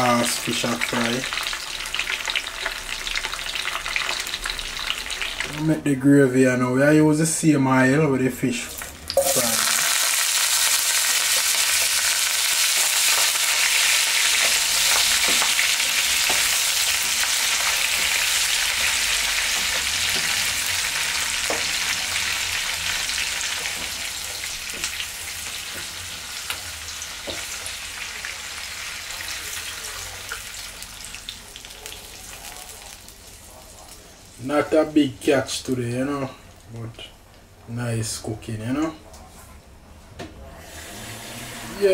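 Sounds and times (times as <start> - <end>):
vegetables sizzling in oil: 0.0 - 5.6, 8.7 - 34.4
spatula tapping pan: 14.3 - 20.4, 27.2 - 27.7.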